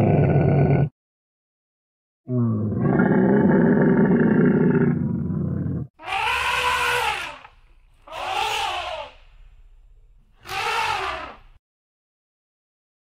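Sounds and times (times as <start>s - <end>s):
long low animal call: 2.3s - 9.3s, 10.4s - 11.6s
short rising and falling animal calls: 6.0s - 9.6s, 10.3s - 11.6s.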